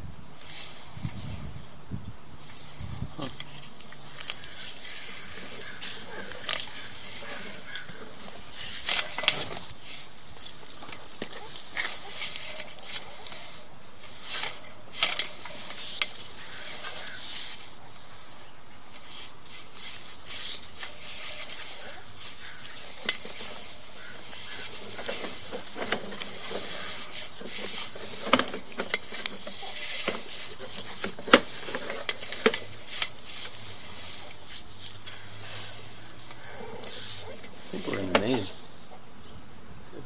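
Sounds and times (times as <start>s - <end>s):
steady hiss: 0.0s - 40.0s
cable clicks and rubbing knocks: 19.8s - 35.1s.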